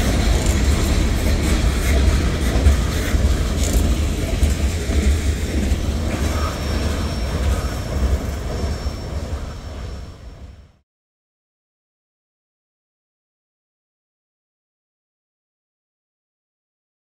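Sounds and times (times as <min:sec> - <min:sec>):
train wheels clattering over rails: 0:00.0 - 0:10.8.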